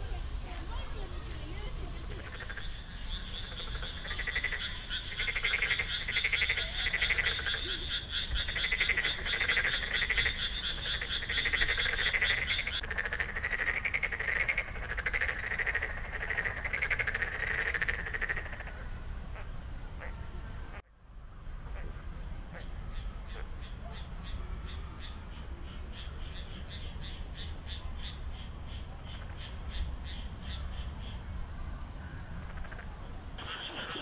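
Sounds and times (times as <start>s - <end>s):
high rattling frog call: 0.0s - 20.2s, 32.4s - 34.0s
frogs croaking: 0.0s - 34.0s.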